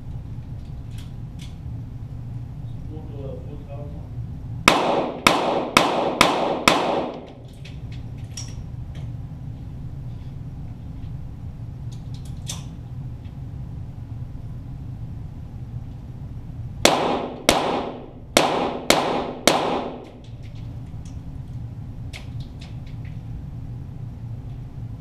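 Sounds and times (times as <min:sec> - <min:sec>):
pistol shots with echo: 0:04.7 - 0:07.4, 0:16.8 - 0:20.2.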